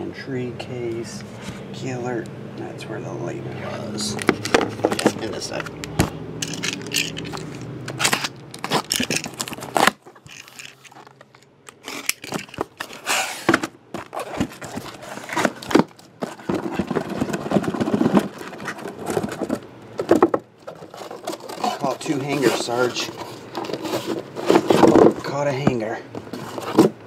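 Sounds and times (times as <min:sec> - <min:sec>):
cardboard box being opened: 0:04.1 - 0:05.7, 0:06.8 - 0:27.0
cardboard rustles and scrapes: 0:04.1 - 0:05.7, 0:06.6 - 0:11.2, 0:11.8 - 0:27.0.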